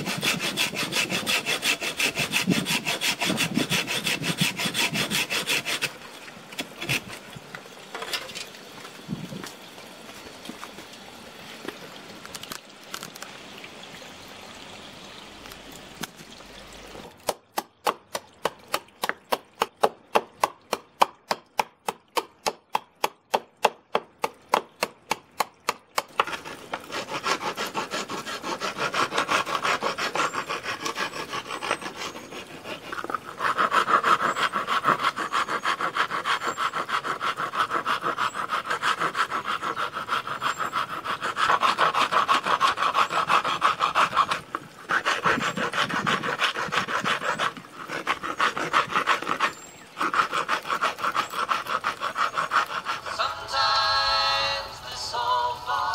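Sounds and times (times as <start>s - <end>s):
hand file rasping on wood: 0.0s - 5.9s, 26.0s - 53.4s.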